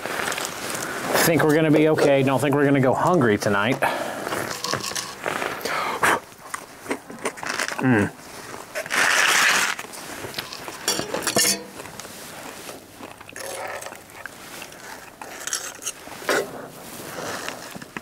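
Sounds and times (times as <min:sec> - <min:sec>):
soft rustling: 0:06.3 - 0:13.3, 0:14.0 - 0:18.0
utensils clinking against dishes: 0:10.4 - 0:12.0.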